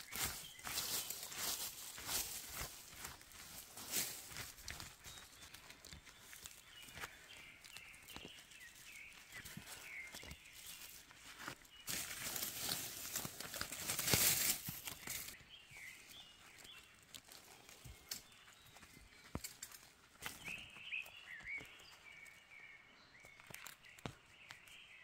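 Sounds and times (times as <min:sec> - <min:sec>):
hands rustling through leaf litter: 0:00.0 - 0:04.8, 0:08.6 - 0:15.4.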